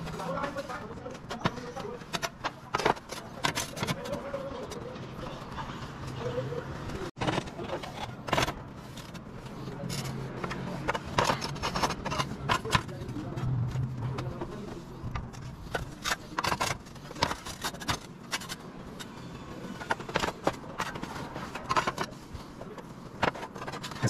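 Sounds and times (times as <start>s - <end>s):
plastic roof tiles clattering: 0.0s - 5.8s, 14.1s - 24.0s.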